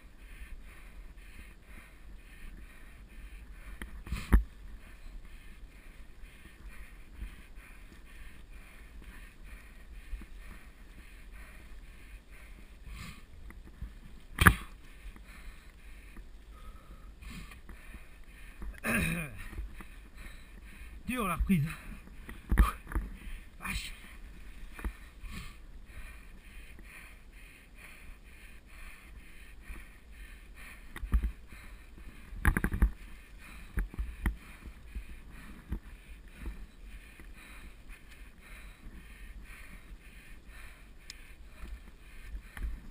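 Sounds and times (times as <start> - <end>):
bike tyres and rattle on dirt: 3.1 - 25.6.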